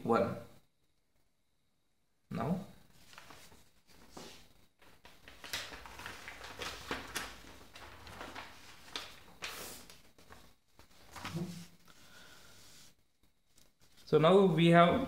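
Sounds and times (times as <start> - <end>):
paper rustling and crinkling: 2.9 - 12.9.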